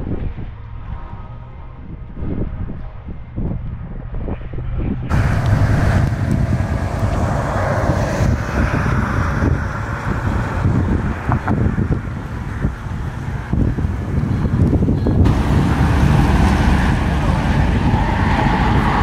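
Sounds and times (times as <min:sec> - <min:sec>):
wind rumble on microphone: 0:00.0 - 0:19.0
car driving slowly past: 0:05.1 - 0:19.0.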